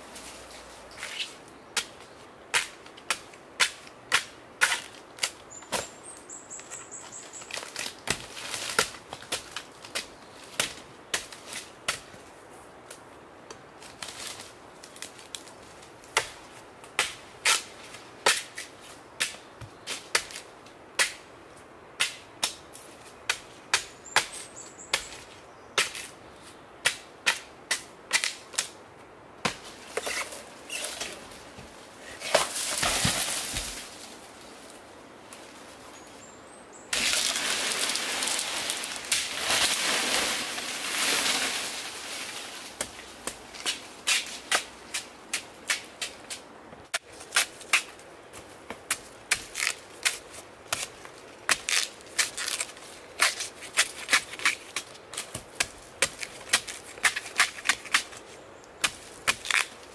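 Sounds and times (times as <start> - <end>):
rustling and crunching of fronds: 0.0 - 21.2, 29.4 - 59.9.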